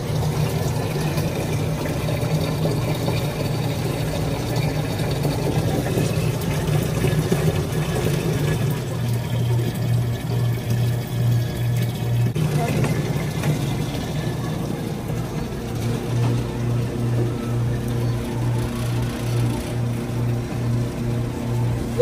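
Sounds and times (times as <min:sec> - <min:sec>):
water pouring into plastic jug: 0:00.0 - 0:21.8
pump humming: 0:00.0 - 0:22.0.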